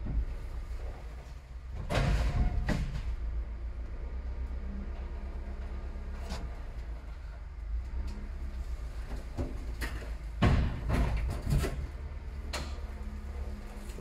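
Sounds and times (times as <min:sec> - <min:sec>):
loud clunking and clattering: 0:00.0 - 0:03.4, 0:04.7 - 0:14.0
vehicle engine idling: 0:03.1 - 0:14.0
sharp knocks: 0:10.4 - 0:11.8.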